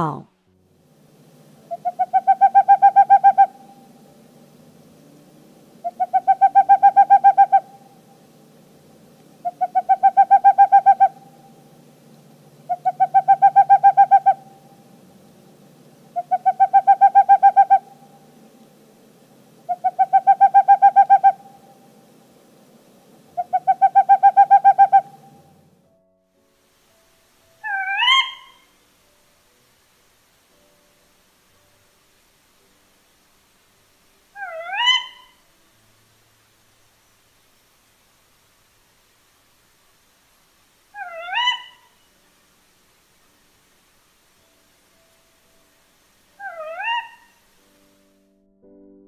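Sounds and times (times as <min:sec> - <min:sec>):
owl hooting trills: 0:01.6 - 0:04.7, 0:05.8 - 0:08.6, 0:09.4 - 0:11.8, 0:12.5 - 0:18.6, 0:19.6 - 0:22.1, 0:23.3 - 0:25.6, 0:27.6 - 0:28.8, 0:34.3 - 0:35.4, 0:40.9 - 0:42.1, 0:46.4 - 0:47.5.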